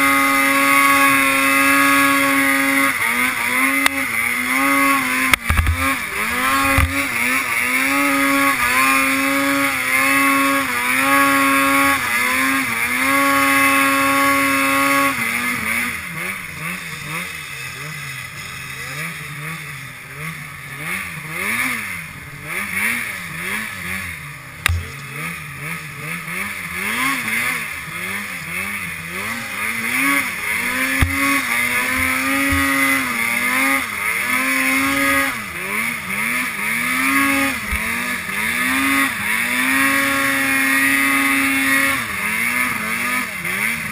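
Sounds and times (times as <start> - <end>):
snowmobile engine revving: 0.0 - 43.9.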